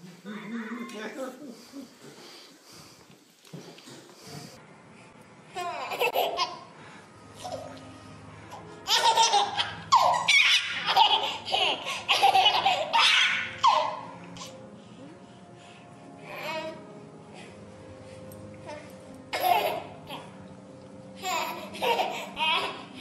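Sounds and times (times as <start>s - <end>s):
baby laughing: 5.6s - 6.7s, 8.8s - 14.5s, 19.3s - 20.3s, 21.2s - 23.0s.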